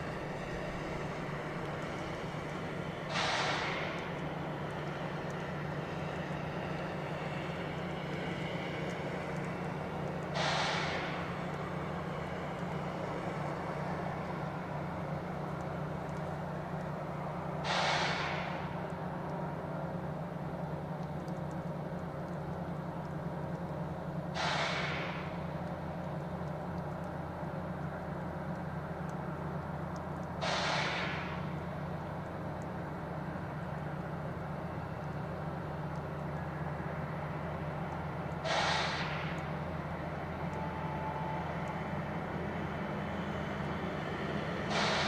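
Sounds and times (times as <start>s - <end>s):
diesel locomotive idling: 0.0s - 45.0s
air hissing: 38.4s - 39.4s.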